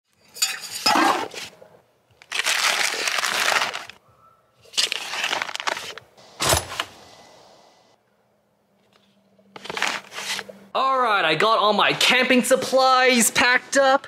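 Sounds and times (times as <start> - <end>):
rustling and crinkling handling: 1.3 - 4.0, 4.6 - 6.1, 8.8 - 10.5.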